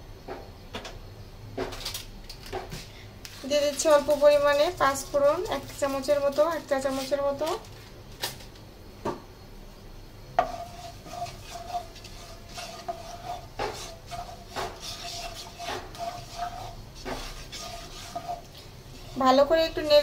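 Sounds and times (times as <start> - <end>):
spatula knocking and scraping wok: 1.6 - 1.8, 2.4 - 7.6, 10.3 - 20.0.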